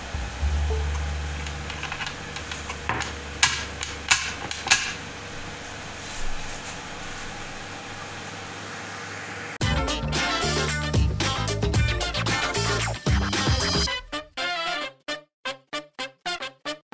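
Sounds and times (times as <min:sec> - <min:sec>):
low hum: 0:00.0 - 0:03.4.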